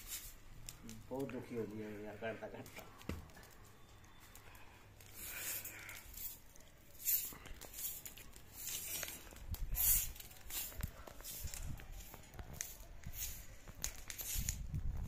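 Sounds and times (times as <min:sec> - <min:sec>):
straw broom sweeping: 0:00.0 - 0:00.6, 0:05.0 - 0:15.0.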